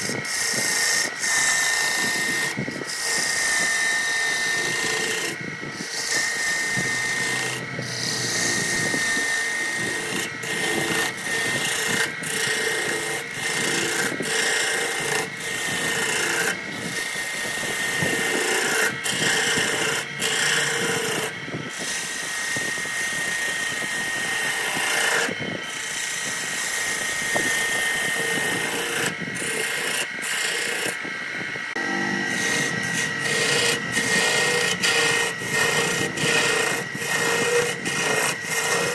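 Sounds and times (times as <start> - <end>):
high machine whine: 0.0 - 38.9
lathe tool scraping wood: 0.0 - 38.9.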